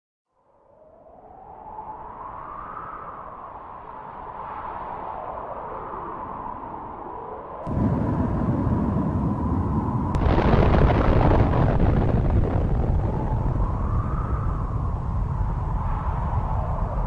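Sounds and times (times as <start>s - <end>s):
explosion deep rumble: 7.7s - 17.0s.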